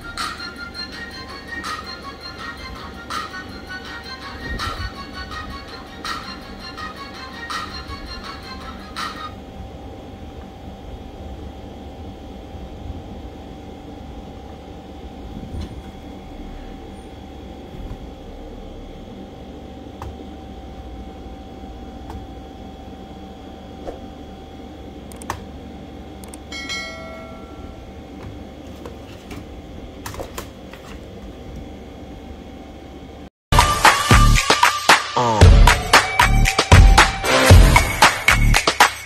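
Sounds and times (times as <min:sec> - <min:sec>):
low background hum: 0:00.0 - 0:34.6
chirping tone: 0:26.3 - 0:28.2.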